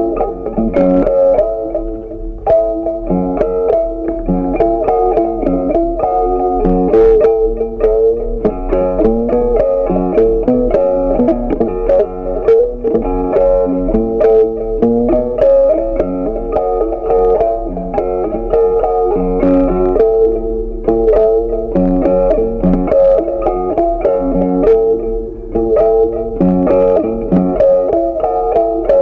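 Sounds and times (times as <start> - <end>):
picked guitar-like melody: 0.0 - 29.0.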